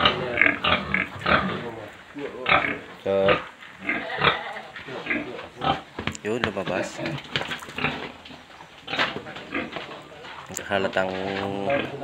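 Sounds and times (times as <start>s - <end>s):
boar grunting: 0.0s - 5.9s.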